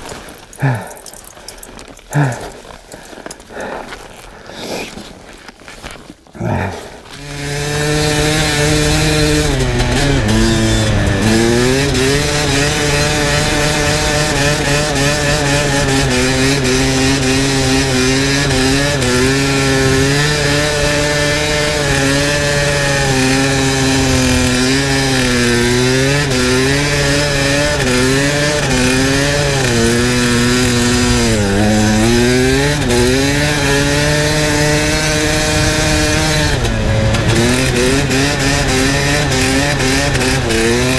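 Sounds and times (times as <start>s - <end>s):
dirt bike engine revving: 6.4s - 40.9s.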